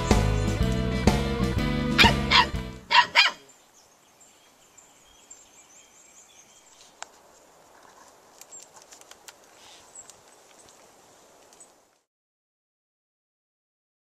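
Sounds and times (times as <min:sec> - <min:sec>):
birds chirping: 0:00.0 - 0:01.2, 0:01.8 - 0:11.8.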